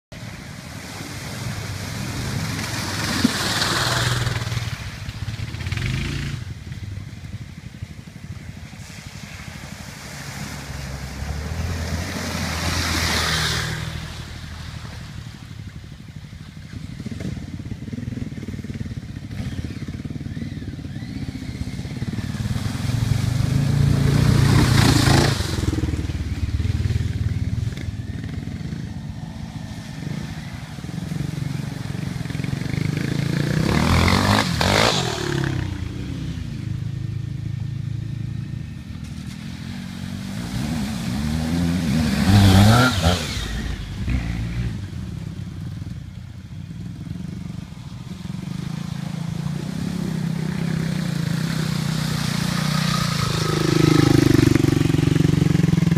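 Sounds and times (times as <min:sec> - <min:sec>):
motorcycles splashing through water: 0:00.2 - 0:55.9
motorcycle engine passing by: 0:00.3 - 0:55.9
motorcycles idling: 0:14.2 - 0:33.8, 0:44.8 - 0:55.9.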